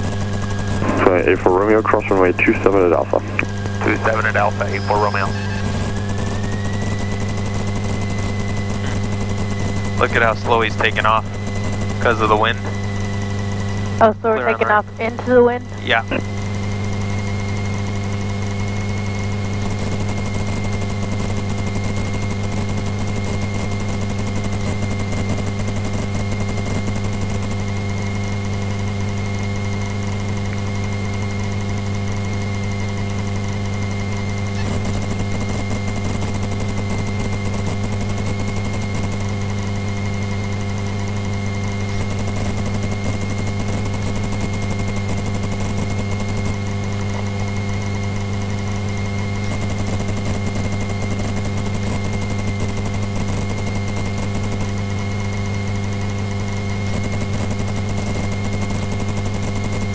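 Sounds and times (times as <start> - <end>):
light aircraft engine droning: 0.0 - 13.1
propeller aircraft engine drone: 0.0 - 15.2, 15.8 - 59.9.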